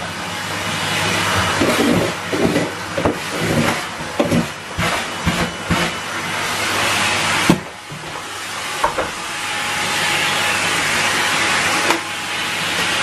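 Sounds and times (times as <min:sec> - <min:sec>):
vacuum cleaner running: 0:00.0 - 0:13.0.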